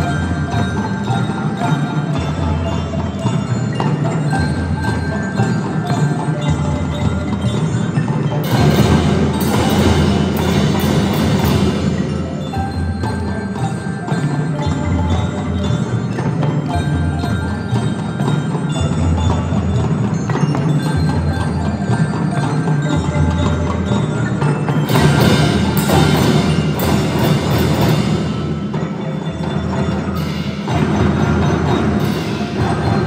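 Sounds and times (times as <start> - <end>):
marching band playing: 0.0 - 33.0
ringing mallet bells: 0.0 - 33.0.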